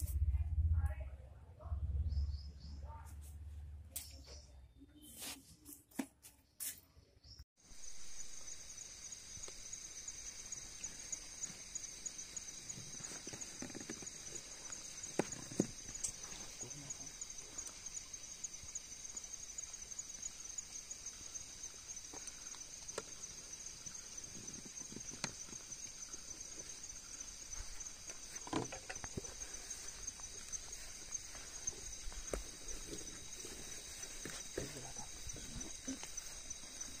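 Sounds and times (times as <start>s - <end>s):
high-pitched insect chorus: 7.6s - 37.0s.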